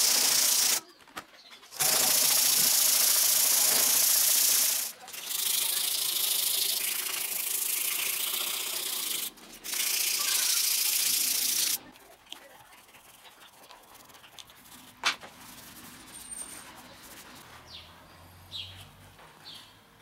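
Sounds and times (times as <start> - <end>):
sanding wooden knife handle: 1.8 - 17.5.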